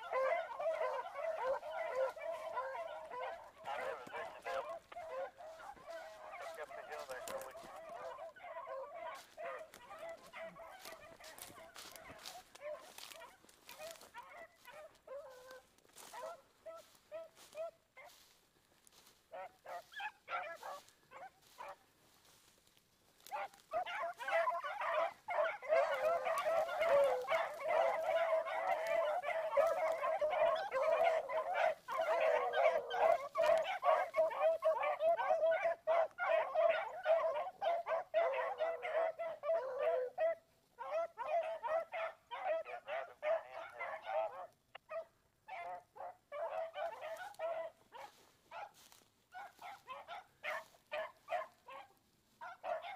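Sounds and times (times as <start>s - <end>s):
hounds baying: 0.0s - 52.9s.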